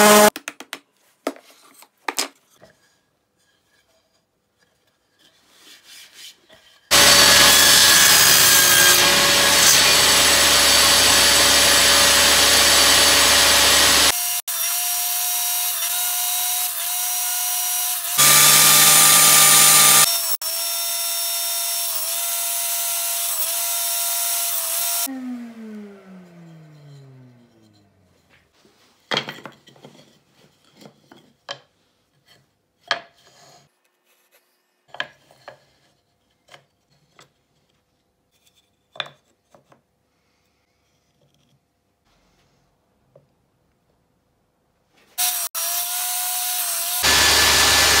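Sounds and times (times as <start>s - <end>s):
table saw cutting wood: 0.0s - 0.3s, 6.9s - 28.0s, 45.2s - 48.0s
high whine of spinning saw: 6.9s - 15.4s, 18.0s - 20.4s, 23.1s - 27.9s, 45.2s - 48.0s.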